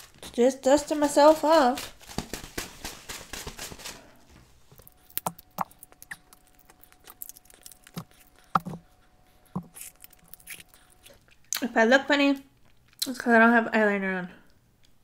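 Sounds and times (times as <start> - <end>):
crab shell snapping: 4.8 - 8.8, 9.6 - 11.0.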